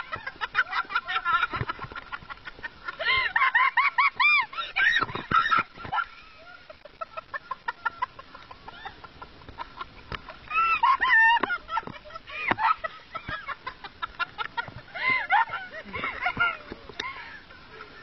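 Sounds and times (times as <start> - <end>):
high-pitched squeals of laughter: 2.9 - 9.2, 10.4 - 13.0.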